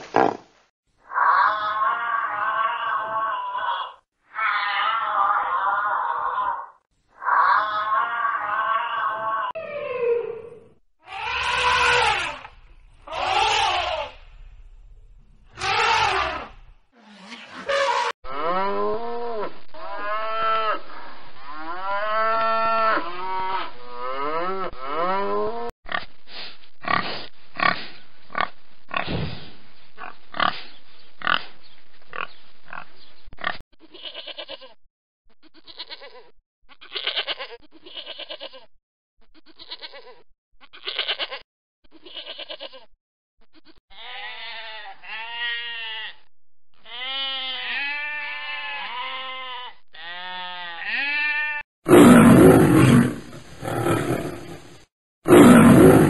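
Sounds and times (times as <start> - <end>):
pigs grunting and oinking: 0.0 - 0.4, 26.8 - 29.2, 30.0 - 31.5, 32.1 - 33.6, 51.9 - 56.0
pigs squealing: 1.1 - 9.5, 11.1 - 14.2, 15.5 - 23.7
sheep bleating: 11.1 - 14.2, 15.6 - 16.6, 33.9 - 34.8, 35.5 - 38.7, 39.4 - 41.4, 42.0 - 42.9, 43.6 - 51.6
elephant trumpeting: 11.1 - 14.3, 15.5 - 18.1.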